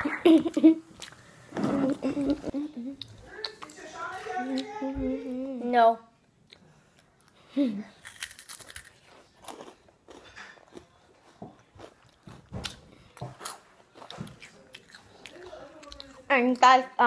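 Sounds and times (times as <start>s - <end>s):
person chewing and crunching: 6.4s - 16.3s.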